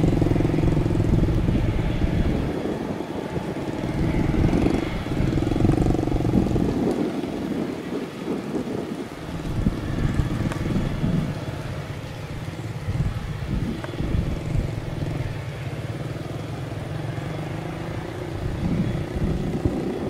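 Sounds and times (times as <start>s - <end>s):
engine buzzing hum: 0.0s - 20.0s.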